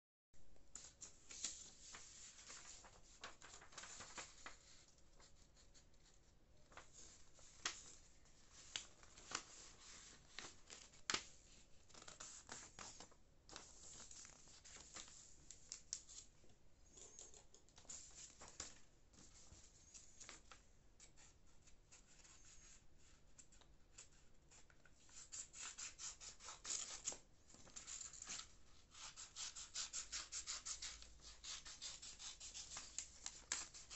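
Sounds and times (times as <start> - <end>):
paper rustling: 0.8 - 16.3, 17.8 - 25.6, 31.0 - 33.9.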